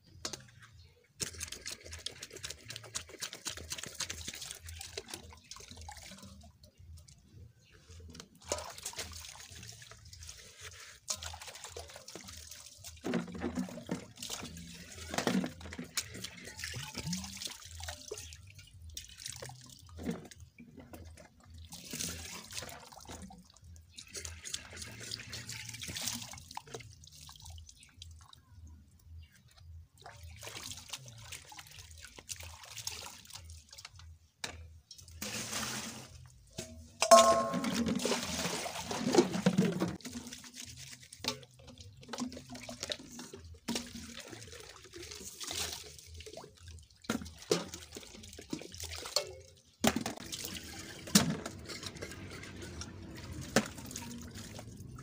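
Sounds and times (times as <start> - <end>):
water splashing into steel basin: 34.9 - 55.0.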